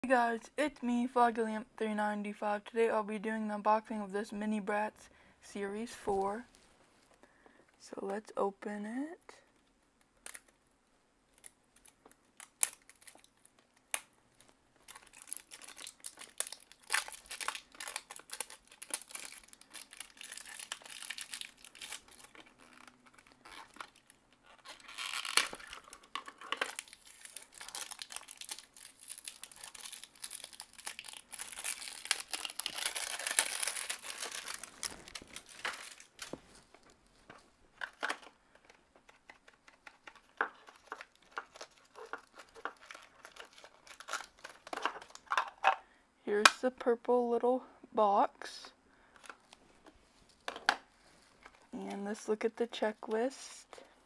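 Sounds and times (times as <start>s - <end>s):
plastic wrapping crinkling and tearing: 10.2s - 10.6s, 11.3s - 45.7s.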